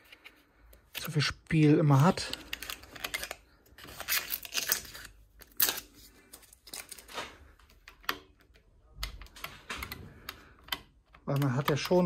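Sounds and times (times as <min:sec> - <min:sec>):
plastic switch handle clicking and rattling: 0:07.7 - 0:12.0.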